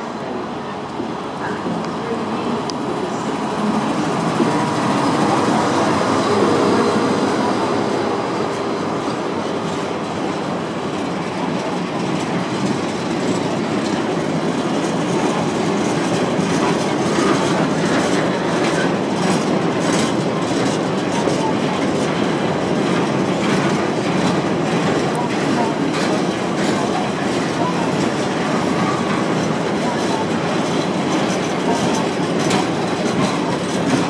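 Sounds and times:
clickety-clack of wheels on track: 0.0 - 34.0
diesel locomotive engine hum: 0.0 - 34.0
train wheels rumbling: 0.0 - 34.0.

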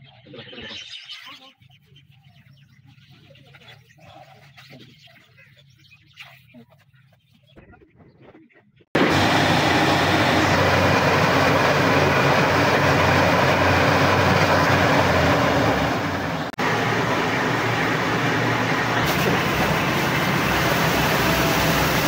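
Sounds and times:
drilling rig machine noise: 9.0 - 22.0
engine hum: 9.0 - 22.0.

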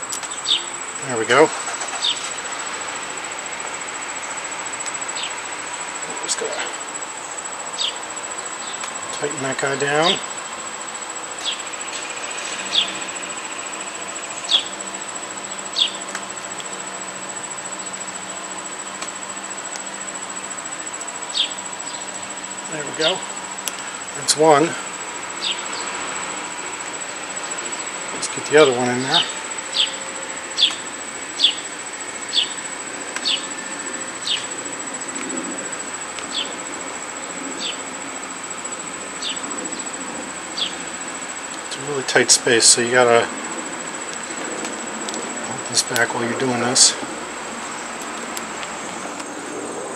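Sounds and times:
insect trilling: 0.0 - 49.9
insect falling chirps: 28.2 - 34.6.

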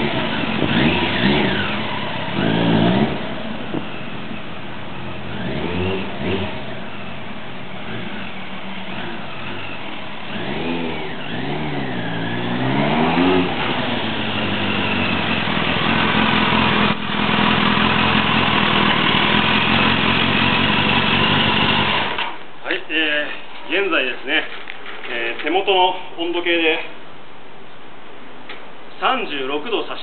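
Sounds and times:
motorcycle engine revving: 0.0 - 22.3.

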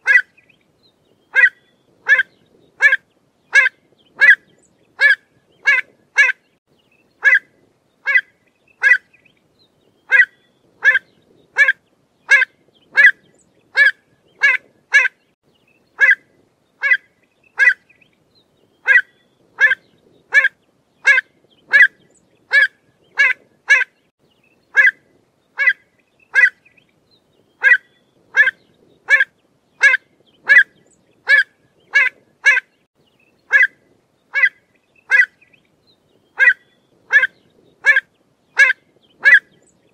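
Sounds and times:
bird calling sharp notes: 1.3 - 6.4, 10.1 - 15.2, 18.8 - 23.9, 27.6 - 32.7, 36.4 - 38.0.

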